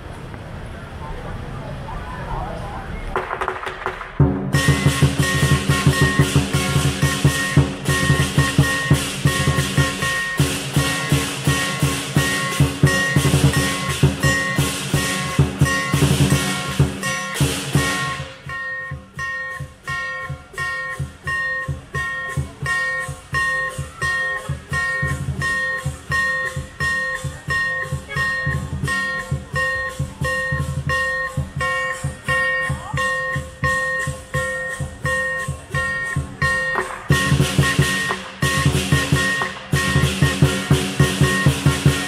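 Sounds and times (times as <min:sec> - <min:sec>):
large drum beating: 0:03.2 - 0:42.0
ringing metal percussion: 0:04.2 - 0:42.0.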